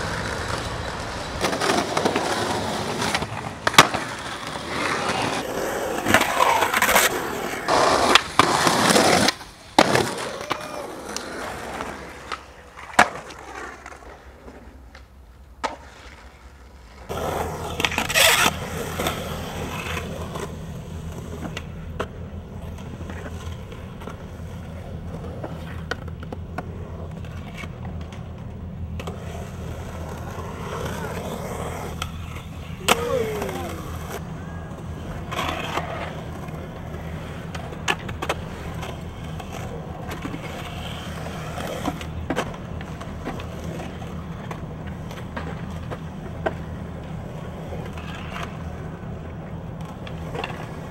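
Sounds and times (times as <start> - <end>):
skateboard clacking on ground: 0.0 - 50.9
skateboard wheels rolling on concrete: 0.0 - 50.9.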